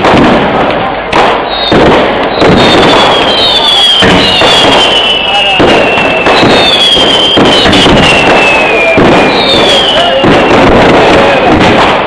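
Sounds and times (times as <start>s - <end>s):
firecracker bangs: 0.0s - 12.0s
shrill falling whistles: 2.6s - 10.2s.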